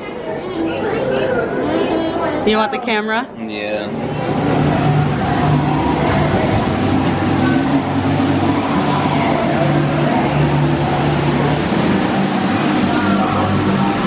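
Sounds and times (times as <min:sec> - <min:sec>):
low hum: 0:03.3 - 0:14.0
rush of falling water: 0:04.0 - 0:14.0.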